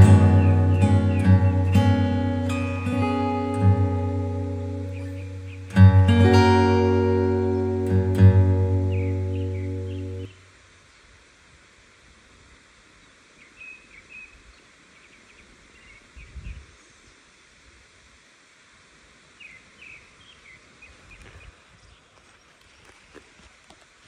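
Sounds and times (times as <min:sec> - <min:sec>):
high bird chirps: 0:00.0 - 0:06.5, 0:07.5 - 0:10.3
steady outdoor hiss: 0:00.0 - 0:24.0.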